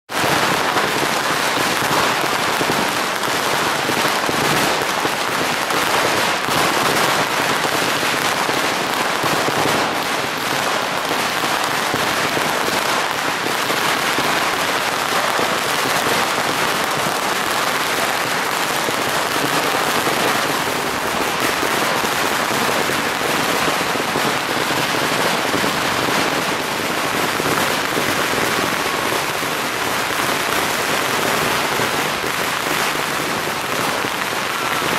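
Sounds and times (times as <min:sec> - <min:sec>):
firecrackers crackling: 0:00.1 - 0:34.9.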